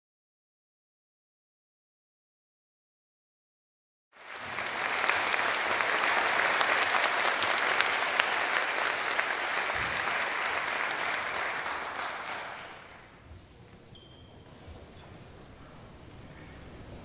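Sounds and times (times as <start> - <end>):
audience applauding: 4.2 - 13.1.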